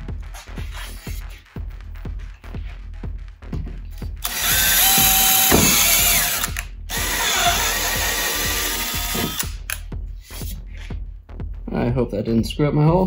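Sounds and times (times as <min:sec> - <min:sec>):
cordless drill boring through metal: 0:04.2 - 0:09.7.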